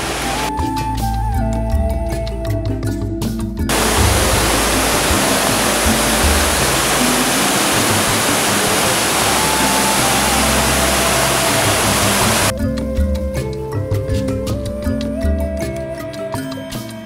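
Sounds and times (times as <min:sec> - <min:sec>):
waterfall rushing: 0:00.0 - 0:00.5, 0:03.7 - 0:12.5.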